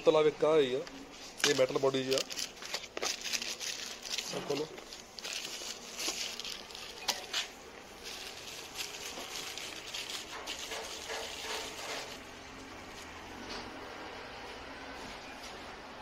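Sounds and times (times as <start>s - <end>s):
plastic wrap crinkling: 1.2s - 13.2s.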